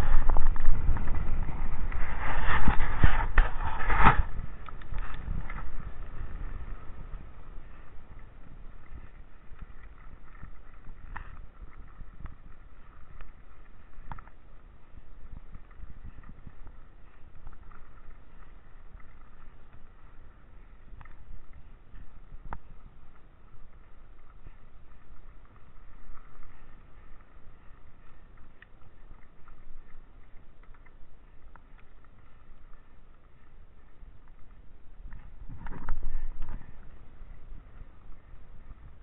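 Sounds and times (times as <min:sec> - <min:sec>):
wind noise on microphone: 0:00.0 - 0:39.0
bike clicks and knocks: 0:08.8 - 0:13.2.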